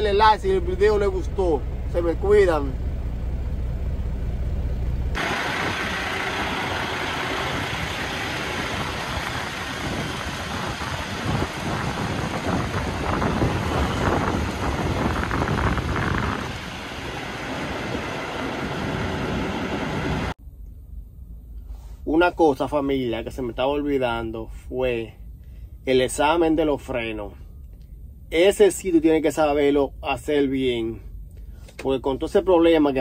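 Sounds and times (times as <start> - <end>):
truck engine running: 0.0 - 21.4
traffic: 0.0 - 22.0
low hum in truck cab: 0.0 - 33.0
wind on microphone: 5.2 - 20.3.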